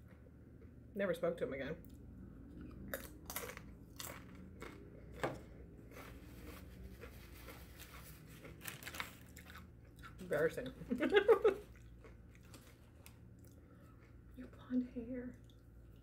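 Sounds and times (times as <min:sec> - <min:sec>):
soft chewing: 0:01.8 - 0:16.0
chip crunching: 0:02.6 - 0:10.8, 0:11.4 - 0:14.2.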